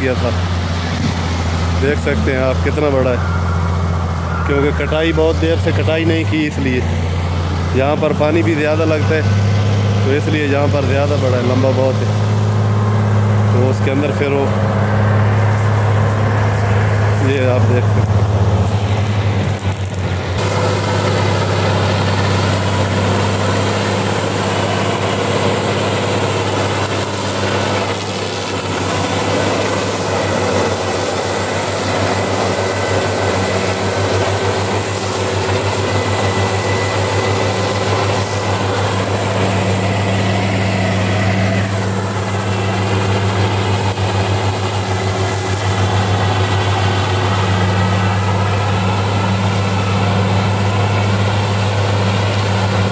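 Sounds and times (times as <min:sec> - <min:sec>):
mower cutting grass: 0:00.0 - 0:52.9
tractor engine droning: 0:00.0 - 0:52.9.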